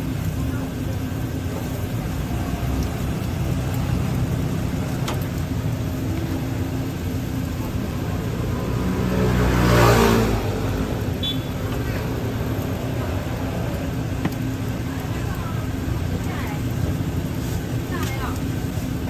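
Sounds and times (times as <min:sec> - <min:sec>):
low rumble of street traffic: 0:00.0 - 0:19.0
vehicle passing close: 0:06.2 - 0:14.8.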